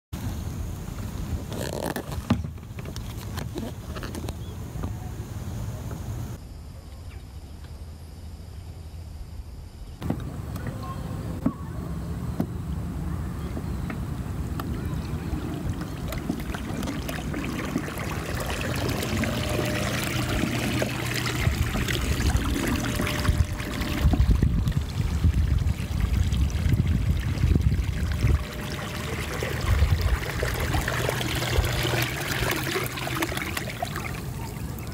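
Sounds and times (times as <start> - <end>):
low uneven rumble: 10.0 - 34.9
water lapping around kayak hull: 14.5 - 34.9.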